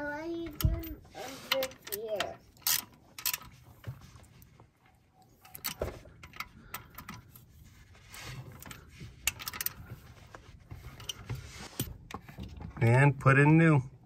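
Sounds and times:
ratchet wrench clicking: 2.6s - 3.5s.

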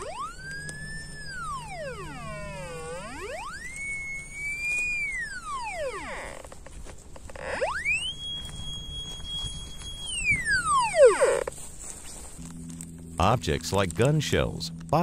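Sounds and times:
metal detector gliding tone: 0.0s - 15.0s.

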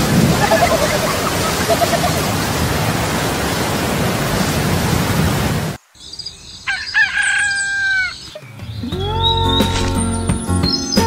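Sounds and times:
rooster crowing: 0.3s - 2.2s, 6.6s - 8.4s.

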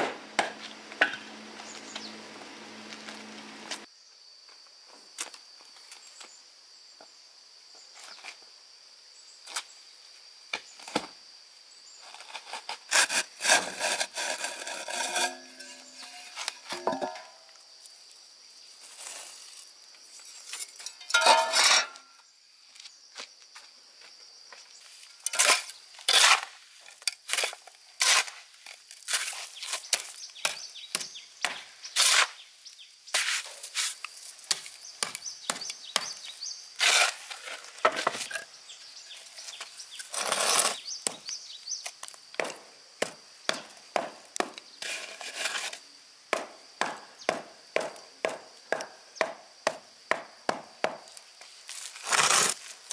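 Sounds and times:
chopping on wood: 0.0s - 1.2s, 34.5s - 36.2s, 41.0s - 41.2s, 42.4s - 44.6s, 46.3s - 51.1s.

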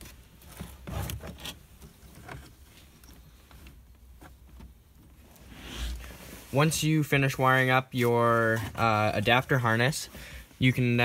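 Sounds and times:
wiring harness rustling: 0.0s - 11.0s.

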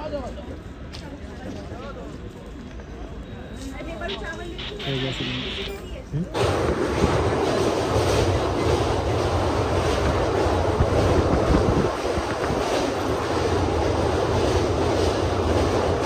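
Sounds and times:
train wheels rumbling on bridge: 6.4s - 16.0s
wind on microphone: 7.0s - 13.4s.

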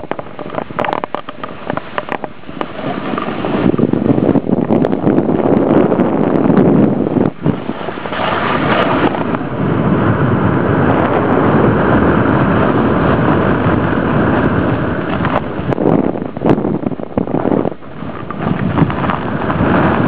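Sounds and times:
wind buffeting microphone: 0.0s - 20.0s
snow hissing under rider: 6.8s - 16.1s.

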